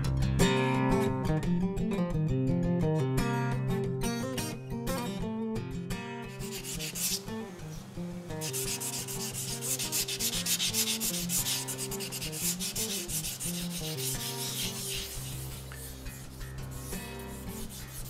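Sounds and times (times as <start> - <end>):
soft guitar music: 0.0 - 18.0
applicator pad rubbing: 6.4 - 7.8, 8.4 - 18.0.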